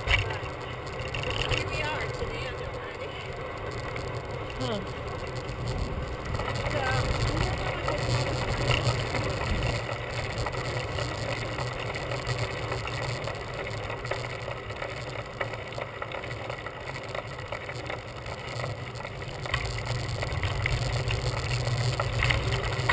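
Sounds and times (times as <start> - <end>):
bicycle tyre noise: 0.0 - 22.9
wind noise: 4.8 - 11.4.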